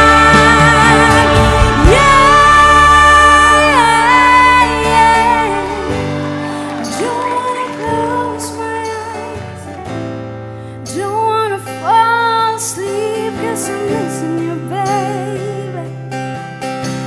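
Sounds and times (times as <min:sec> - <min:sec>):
slow song with singing: 0:00.0 - 0:09.7.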